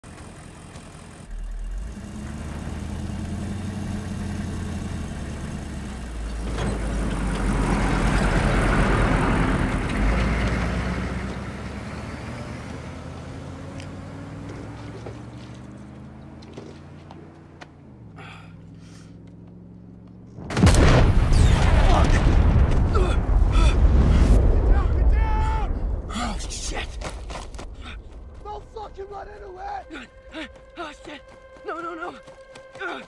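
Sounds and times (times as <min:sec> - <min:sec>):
diesel engines running: 0:00.0 - 0:20.9, 0:27.7 - 0:33.0.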